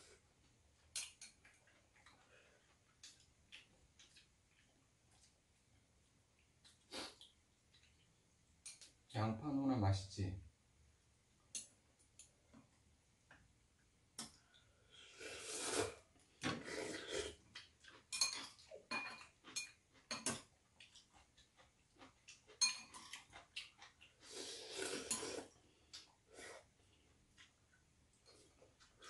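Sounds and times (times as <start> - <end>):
noodle slurping: 15.1 - 17.4, 23.0 - 25.6
chopsticks clinking against bowls: 18.1 - 20.5, 22.5 - 23.4.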